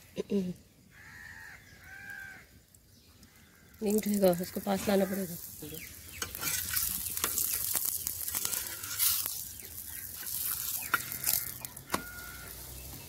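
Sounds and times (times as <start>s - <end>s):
oil sizzling: 2.7s - 13.0s
metal spoon scraping griddle: 5.8s - 12.8s.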